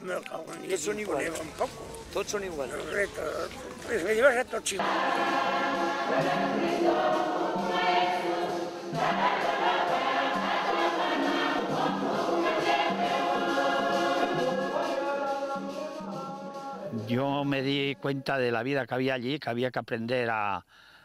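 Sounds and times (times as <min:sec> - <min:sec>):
choir singing: 0:04.8 - 0:18.2.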